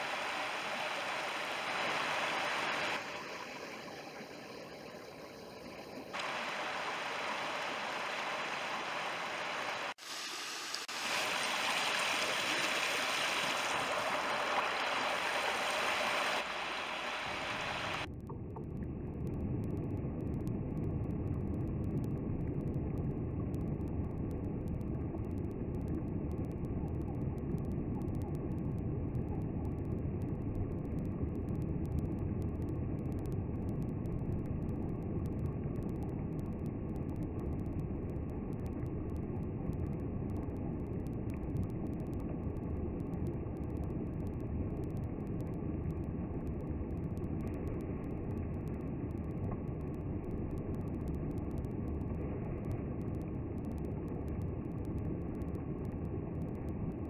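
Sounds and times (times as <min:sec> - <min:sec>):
stream rushing over stones: 0:00.0 - 0:05.1, 0:05.8 - 0:18.1.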